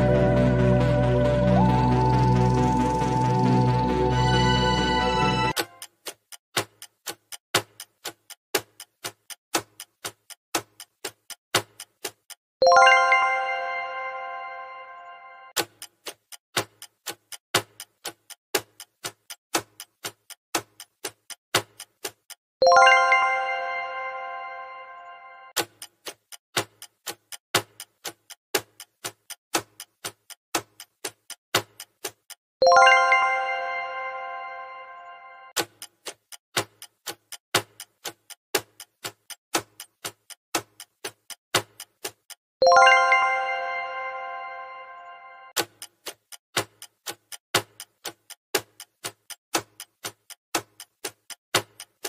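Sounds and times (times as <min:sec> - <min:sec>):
clock ticking: 0:00.7 - 0:13.0, 0:15.5 - 0:23.0, 0:25.5 - 0:33.0, 0:35.5 - 0:43.0, 0:45.5 - 0:52.0
bell-like chime: 0:12.7 - 0:15.5, 0:22.7 - 0:25.5, 0:32.7 - 0:35.5, 0:42.7 - 0:45.5.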